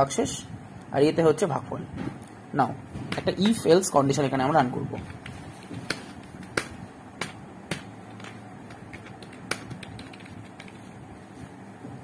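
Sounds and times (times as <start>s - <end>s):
keyboard keystrokes: 8.8s - 10.8s.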